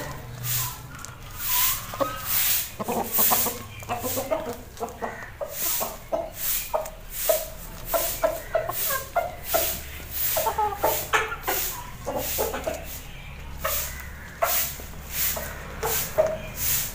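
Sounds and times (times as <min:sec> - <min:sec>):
beaks tapping on scraps: 0:00.0 - 0:10.6
hens clucking: 0:00.0 - 0:16.9.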